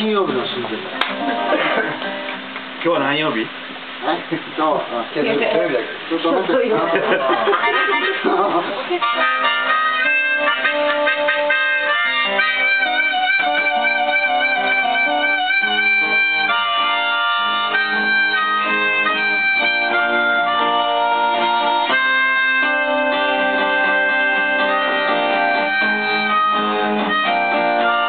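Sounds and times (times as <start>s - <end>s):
busy pitched accompaniment: 6.6s - 28.0s.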